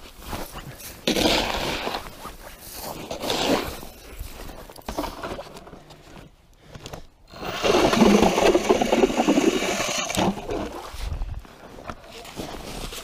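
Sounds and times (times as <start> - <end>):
electric ice auger drilling ice: 7.3 - 10.8.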